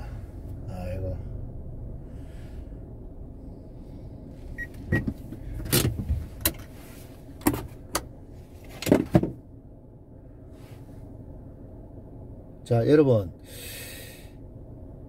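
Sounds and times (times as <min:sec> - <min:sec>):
steady low rumble: 0:00.0 - 0:15.0
sharp clicks and knocks in car: 0:04.6 - 0:06.8, 0:07.4 - 0:09.4.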